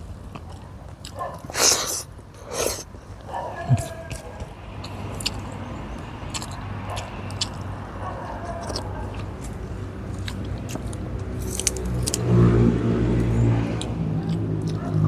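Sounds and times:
motor vehicle engine hum: 0:02.2 - 0:15.0
clicks from eating with hands: 0:03.7 - 0:05.5, 0:13.7 - 0:15.0.

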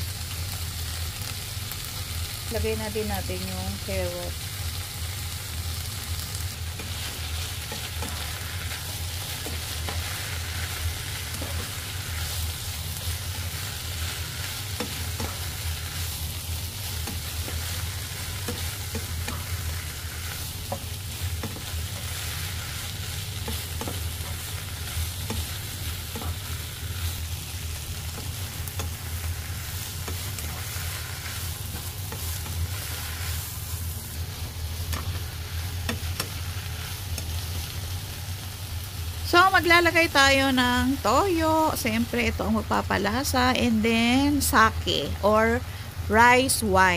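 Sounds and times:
food sizzling in a frying pan: 0:00.0 - 0:46.9
steady low hum: 0:02.4 - 0:46.9
spatula scraping a pan: 0:06.6 - 0:27.2, 0:28.0 - 0:34.2.

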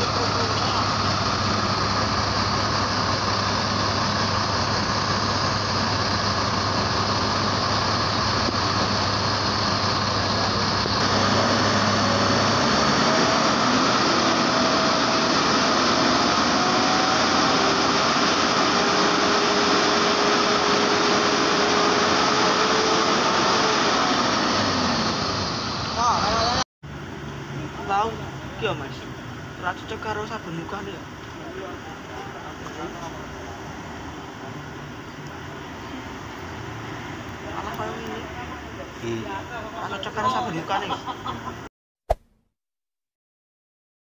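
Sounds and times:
bus diesel engine idling: 0:00.0 - 0:41.6.

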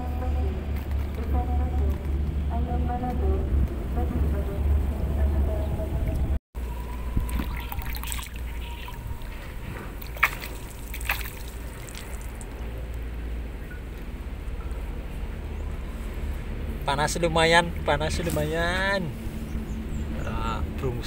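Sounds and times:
water sloshing and trickling: 0:06.6 - 0:13.1.

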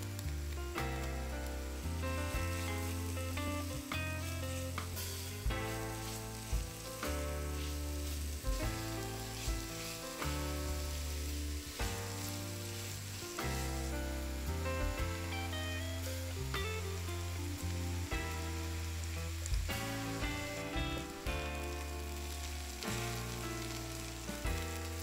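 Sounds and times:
background music with steady bass: 0:00.0 - 0:25.0
vegetables sizzling in butter: 0:00.0 - 0:25.0.

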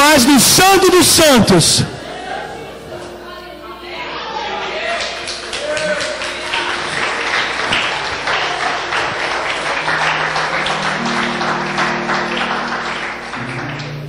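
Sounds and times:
congregation applauding: 0:04.5 - 0:14.0
low instrumental notes: 0:09.1 - 0:14.0.

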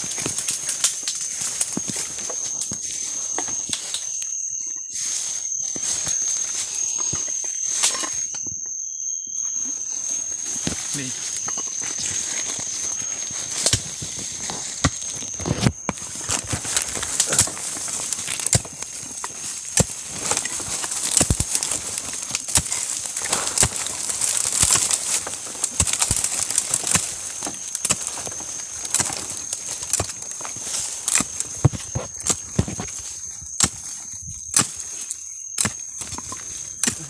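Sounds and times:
twigs snapping: 0:00.0 - 0:02.9, 0:10.5 - 0:37.0
steady high tone: 0:01.8 - 0:13.7
brush rustling and crackling: 0:09.7 - 0:35.2.

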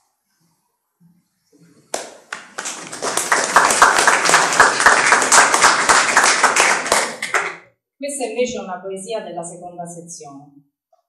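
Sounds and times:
audience applauding: 0:01.9 - 0:07.6.

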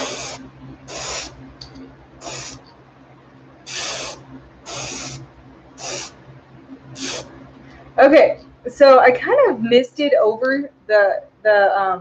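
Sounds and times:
airbrush spraying: 0:00.0 - 0:01.4, 0:02.2 - 0:02.6, 0:03.7 - 0:06.2, 0:07.0 - 0:07.3
steady low hum: 0:00.0 - 0:12.0.

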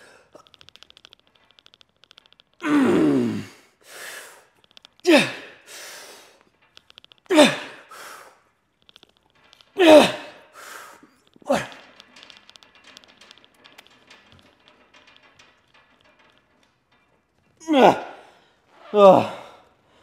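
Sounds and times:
sharp breaths: 0:03.4 - 0:04.5, 0:10.5 - 0:11.2
man grunting: 0:05.1 - 0:05.5, 0:07.3 - 0:07.8, 0:09.8 - 0:10.4, 0:17.6 - 0:18.2.

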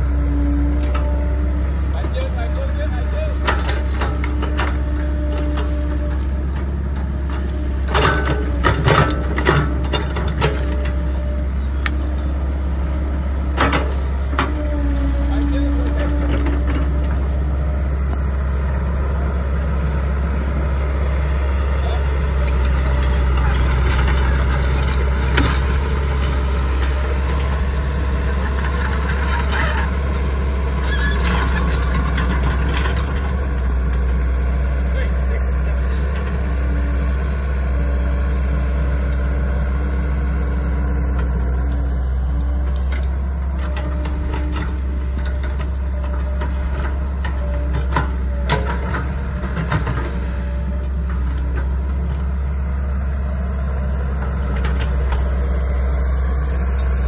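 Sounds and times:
excavator diesel engine running: 0:00.0 - 0:57.0
knocks and clanks: 0:03.4 - 0:11.0, 0:15.4 - 0:17.3, 0:22.5 - 0:27.6, 0:42.7 - 0:50.2.

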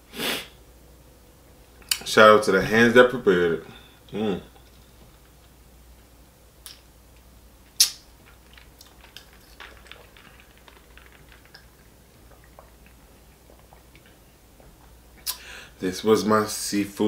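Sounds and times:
lips smacking: 0:07.8 - 0:15.5.

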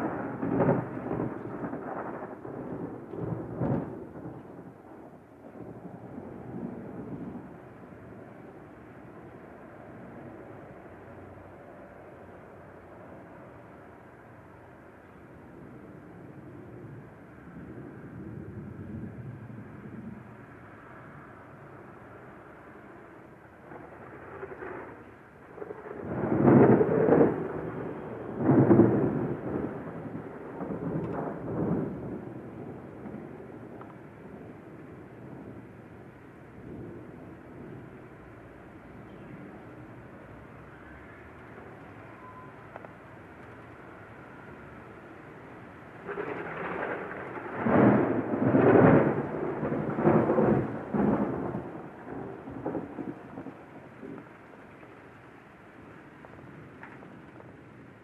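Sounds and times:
rolling thunder: 0:00.0 - 0:10.4, 0:15.6 - 0:22.0, 0:23.0 - 0:40.7, 0:44.3 - 0:55.0.

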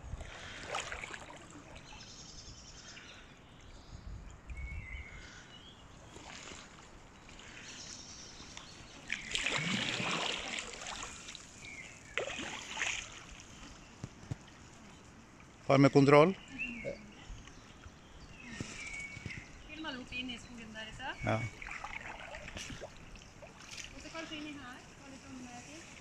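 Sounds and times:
kayak paddles splashing: 0:00.0 - 0:03.2, 0:05.2 - 0:26.0
water trickling drips: 0:19.2 - 0:24.8.

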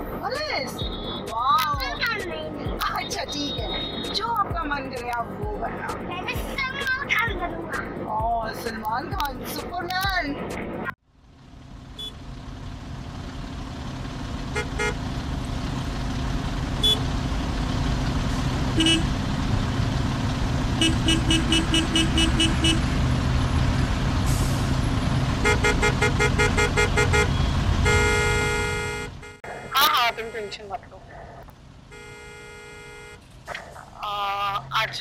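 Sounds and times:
heavy road traffic: 0:00.0 - 0:35.0
car horns honking: 0:00.6 - 0:04.5, 0:11.9 - 0:12.2, 0:14.5 - 0:15.0, 0:16.8 - 0:17.1, 0:18.7 - 0:19.2, 0:20.7 - 0:23.0, 0:25.4 - 0:30.8, 0:31.9 - 0:33.3.

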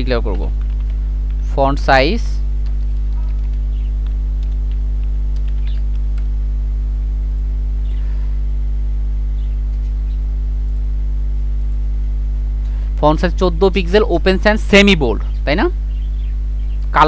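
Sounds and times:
electrical mains hum: 0:00.0 - 0:17.0
keyboard and mouse clicks: 0:00.2 - 0:01.4, 0:02.6 - 0:06.3.

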